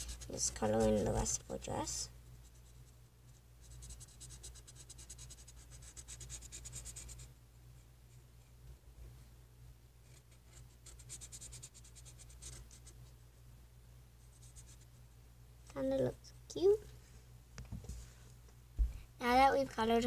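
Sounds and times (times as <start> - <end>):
marker scratching on paper: 0.0 - 1.6, 2.4 - 7.3, 10.0 - 13.0, 14.2 - 14.9
steady low hum: 0.0 - 20.0.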